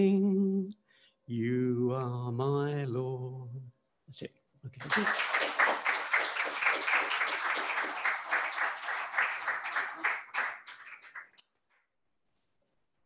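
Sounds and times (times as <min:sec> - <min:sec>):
people clapping: 0:04.8 - 0:11.9.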